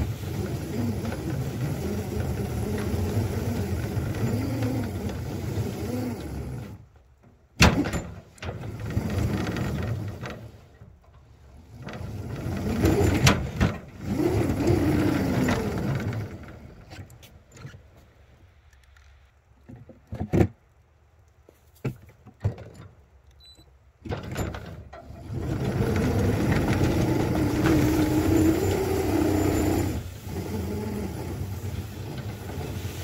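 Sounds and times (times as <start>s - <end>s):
miniature locomotive drive running: 0.0s - 7.1s, 7.7s - 17.2s, 24.2s - 33.0s.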